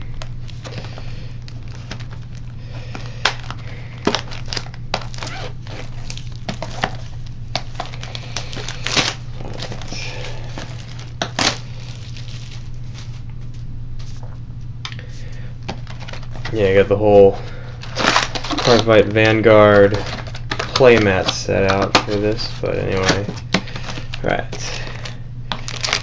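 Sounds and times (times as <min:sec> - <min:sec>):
plastic wrap crinkling: 0:00.0 - 0:13.3, 0:15.7 - 0:26.0
low steady hum: 0:00.0 - 0:26.0.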